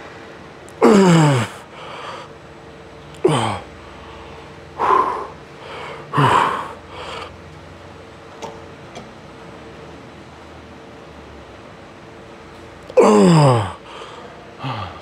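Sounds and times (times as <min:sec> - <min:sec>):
man grunting with effort: 0:00.8 - 0:02.2, 0:03.2 - 0:03.7, 0:04.8 - 0:07.2, 0:12.9 - 0:15.0.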